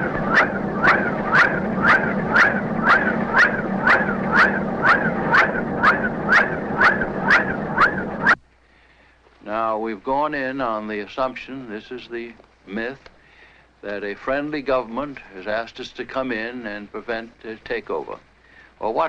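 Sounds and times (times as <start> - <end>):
steady low hum: 0.0 - 12.9.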